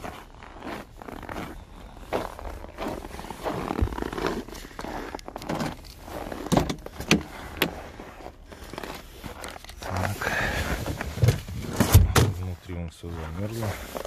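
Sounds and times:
footsteps crunching on snow: 0.0s - 14.0s.

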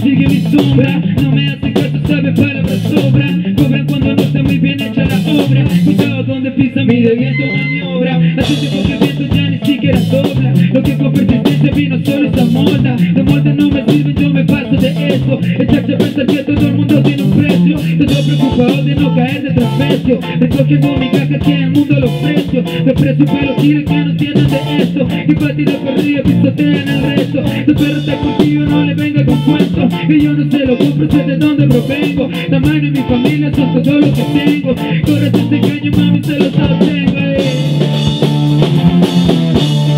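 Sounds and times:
bass guitar: 0.0s - 39.9s
drum kit: 0.0s - 39.9s
electric guitar: 0.0s - 39.9s.

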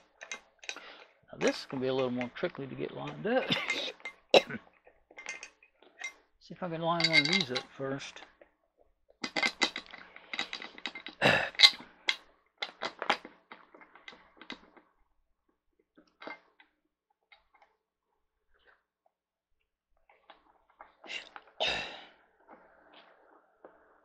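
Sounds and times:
metal bracket clicking and knocking: 0.0s - 0.8s, 5.1s - 6.2s, 6.9s - 7.7s, 9.2s - 14.8s.

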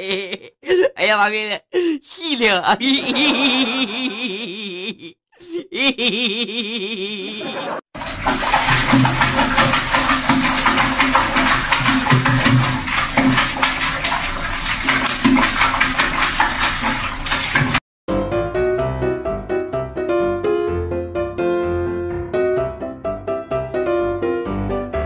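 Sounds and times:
dog drinking from toilet bowl: 8.0s - 17.8s.

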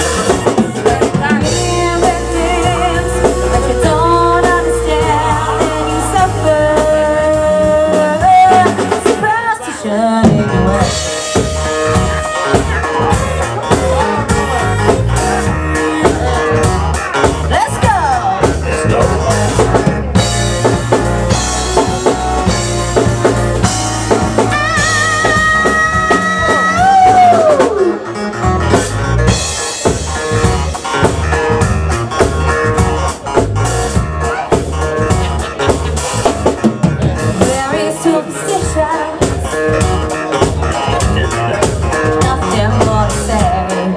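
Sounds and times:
drum kit beat: 0.0s - 43.9s
guitar: 0.0s - 43.9s
woman singing: 1.0s - 11.2s, 24.4s - 28.0s, 37.4s - 39.4s, 42.1s - 43.9s.

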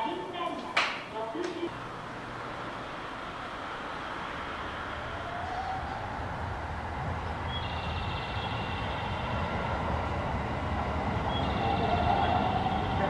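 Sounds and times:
steady high tones: 1.7s - 13.0s
train low rumble: 1.7s - 13.0s.

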